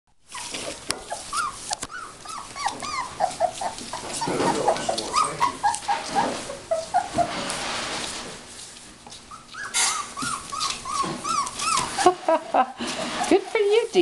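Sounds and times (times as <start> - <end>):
puppies whimpering and yipping: 0.3 - 7.6, 9.1 - 14.0.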